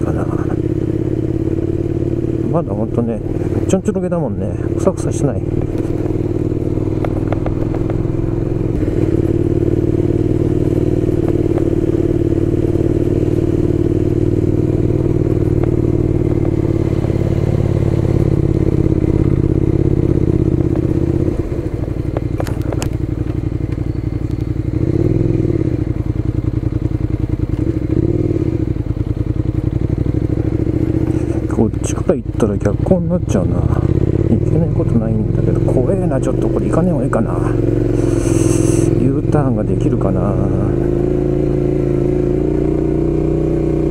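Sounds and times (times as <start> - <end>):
motorcycle engine running: 0.0 - 43.9.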